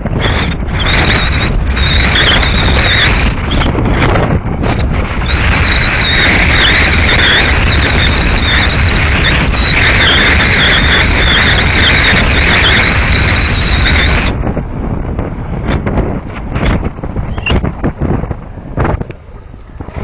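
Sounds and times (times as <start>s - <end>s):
wind buffeting microphone: 0.0s - 20.0s
thin high whine: 0.1s - 14.4s.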